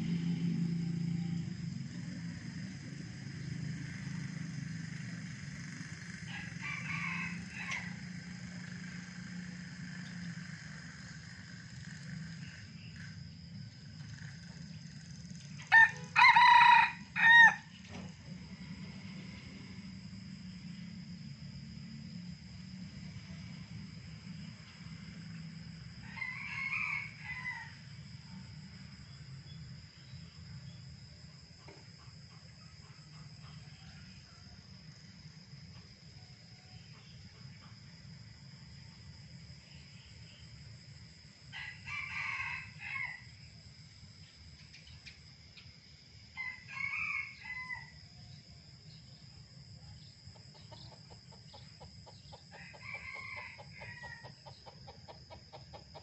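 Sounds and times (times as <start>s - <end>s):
high insect whine: 0.0s - 56.0s
rooster crowing: 0.3s - 1.8s, 6.3s - 8.8s, 15.6s - 17.8s, 25.9s - 28.5s, 41.5s - 43.4s, 46.3s - 48.3s, 51.5s - 56.0s.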